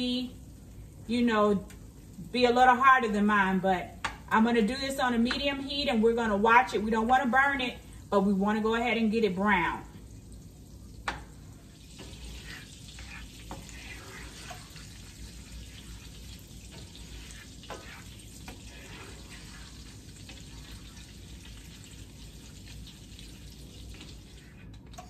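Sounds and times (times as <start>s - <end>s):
butter sizzling in a skillet: 10.0s - 24.7s.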